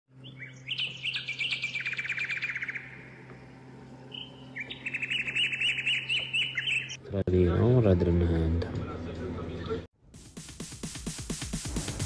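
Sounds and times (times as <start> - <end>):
songbirds singing: 0.1 - 7.0.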